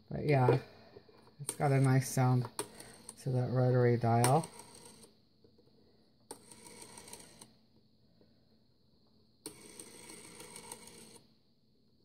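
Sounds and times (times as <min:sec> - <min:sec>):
rotary phone dial whirring: 0:01.5 - 0:03.2, 0:04.0 - 0:05.2, 0:06.3 - 0:07.6, 0:09.4 - 0:11.3.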